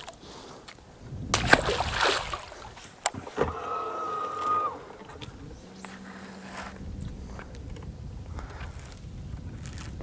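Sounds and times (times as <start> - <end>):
fish splashing into water: 1.4 - 5.2
steady whine: 3.1 - 9.5.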